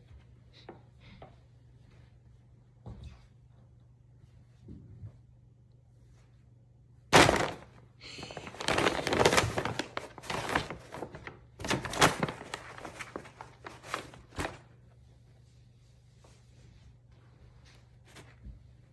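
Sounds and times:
paper bag rustling and crinkling: 7.1 - 14.8.

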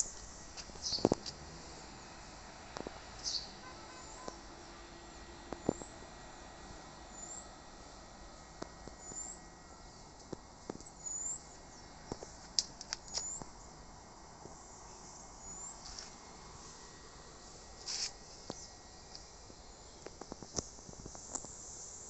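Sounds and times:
small bird chirping: 0.0 - 1.2, 3.2 - 4.4, 7.1 - 7.5, 8.9 - 10.1, 10.8 - 12.4, 13.0 - 13.8, 14.6 - 15.9
steady hiss: 0.0 - 22.0.

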